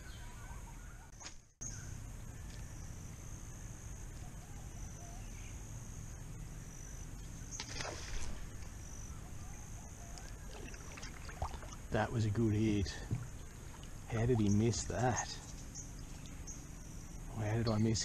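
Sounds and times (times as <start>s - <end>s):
faint bird calls: 0.0s - 12.0s
insect drone: 1.6s - 18.0s.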